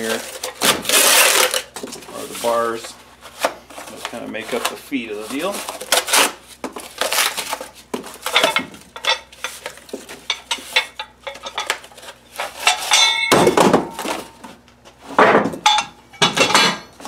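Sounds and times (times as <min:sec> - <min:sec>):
cardboard rustling and scraping: 0:00.0 - 0:08.4.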